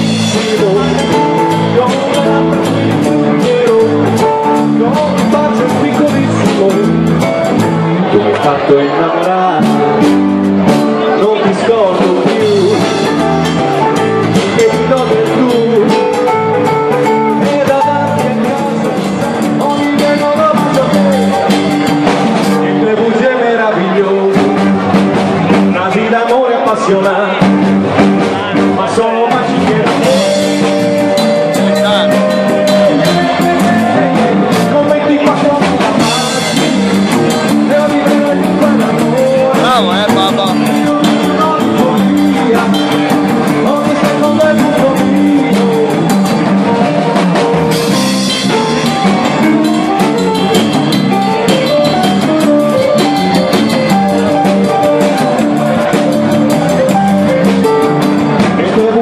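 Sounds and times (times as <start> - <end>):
live swing band playing: 0.0 - 59.0.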